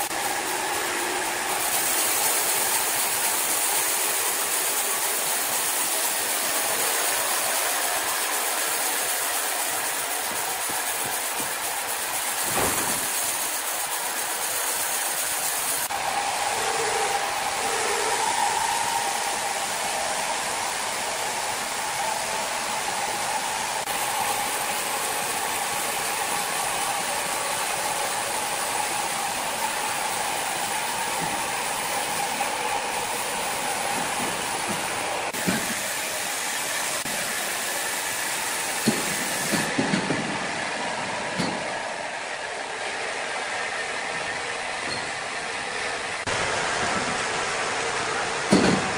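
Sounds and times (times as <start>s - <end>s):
band saw cutting log: 0.0s - 19.8s.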